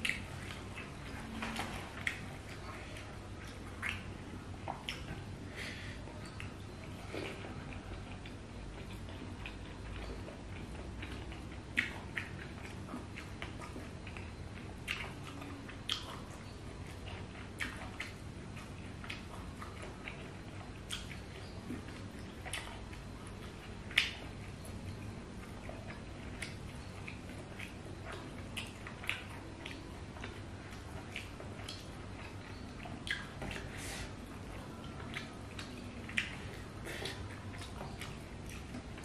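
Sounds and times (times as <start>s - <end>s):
wet chewing and lip smacks: 0.0s - 39.0s.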